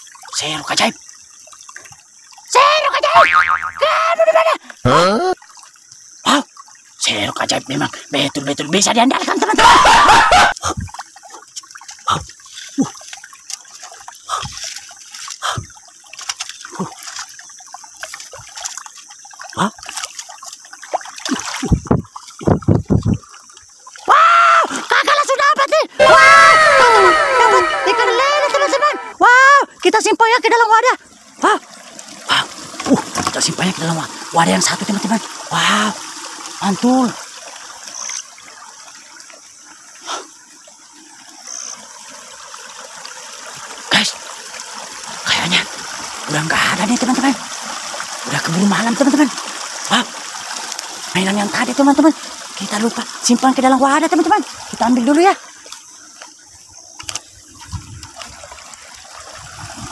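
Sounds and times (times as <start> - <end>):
muddy water splashing: 0.0 - 59.9.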